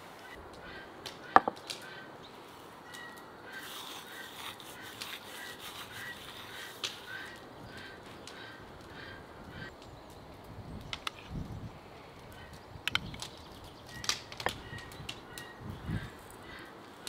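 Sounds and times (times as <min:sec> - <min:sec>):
birds chirping faintly: 0:00.0 - 0:17.0
dried herbs rubbed between palms: 0:03.5 - 0:07.4.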